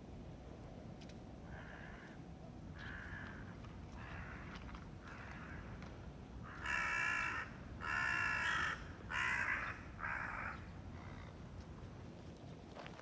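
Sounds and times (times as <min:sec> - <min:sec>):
crow cawing: 0:01.5 - 0:05.8, 0:06.4 - 0:11.3.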